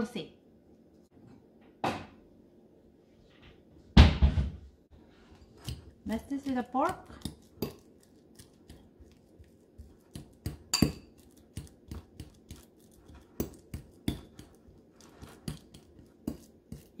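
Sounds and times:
fork clinking against ceramic bowl: 0:10.4 - 0:11.2.

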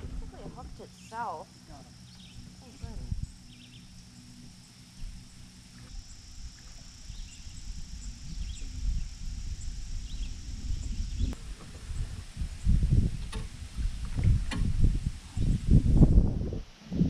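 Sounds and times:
high insect drone: 0:00.0 - 0:17.0
low rumble: 0:00.0 - 0:17.0.

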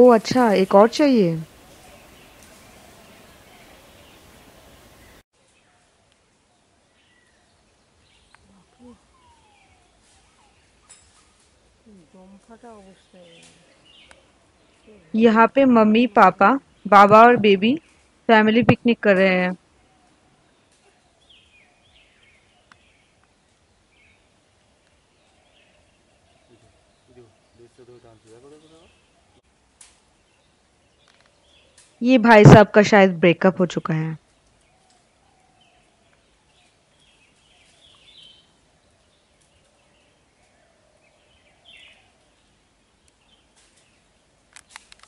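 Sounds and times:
bird chirps: 0:00.0 - 0:05.8, 0:34.8 - 0:42.4
faint bird chirps: 0:00.0 - 0:15.3.

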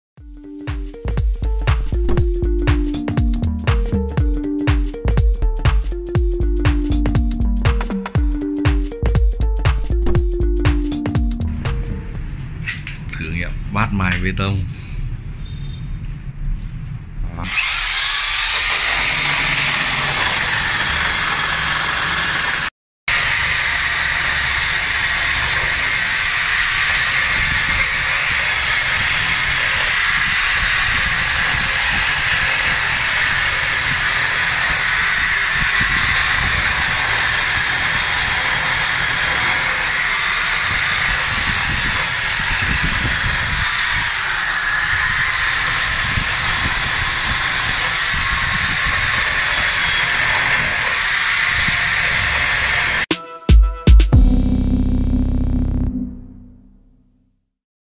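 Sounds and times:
power drill grinding wall: 0:17.4 - 0:53.1.

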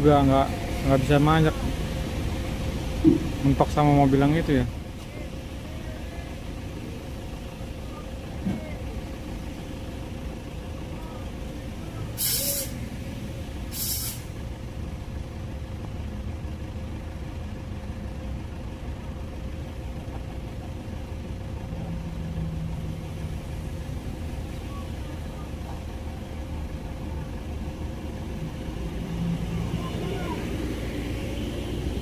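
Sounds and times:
diesel trucks idling: 0:00.0 - 0:32.0
air brake hiss: 0:12.2 - 0:12.8, 0:13.6 - 0:14.4.

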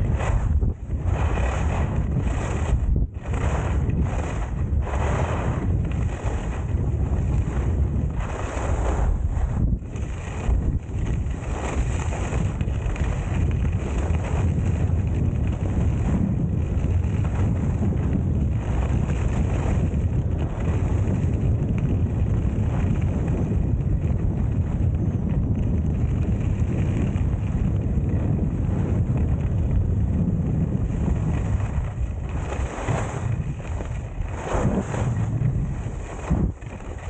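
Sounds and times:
wind rushing over microphone: 0:00.0 - 0:37.0
skis hissing over snow: 0:01.1 - 0:07.4, 0:08.1 - 0:10.5, 0:32.4 - 0:37.0.

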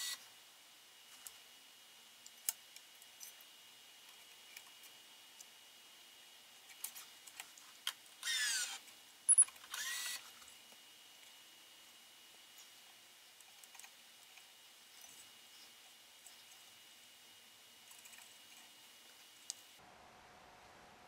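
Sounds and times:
motor whine of stringing machine: 0:08.2 - 0:10.5.

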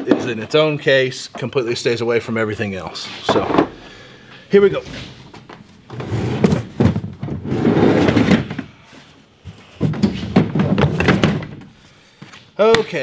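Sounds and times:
plastic toolbox scraping and clunking: 0:04.7 - 0:08.8, 0:09.5 - 0:11.7.

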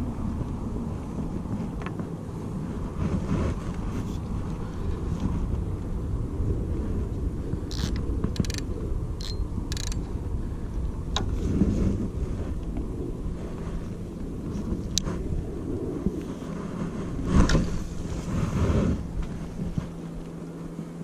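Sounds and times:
wind buffeting microphone: 0:00.0 - 0:21.0
fishing reel clicks: 0:07.7 - 0:10.0.

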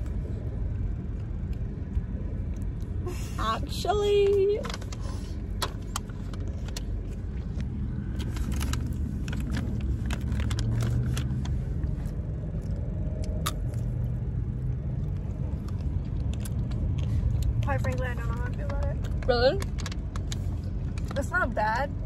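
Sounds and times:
car cabin rumble: 0:00.0 - 0:22.0.

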